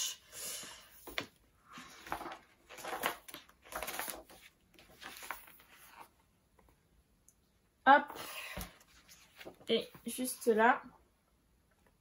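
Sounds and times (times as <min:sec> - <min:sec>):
pages rustling: 0:01.0 - 0:06.7, 0:08.8 - 0:10.4.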